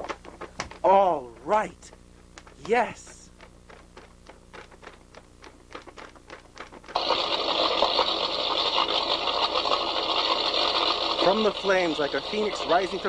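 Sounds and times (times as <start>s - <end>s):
faint rapid clicking: 0.0s - 7.2s
fire rushing: 7.0s - 13.0s.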